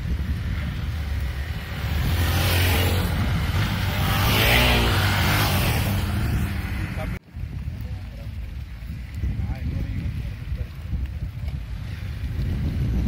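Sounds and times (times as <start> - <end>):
dirt bike engine revving: 1.2 - 7.2.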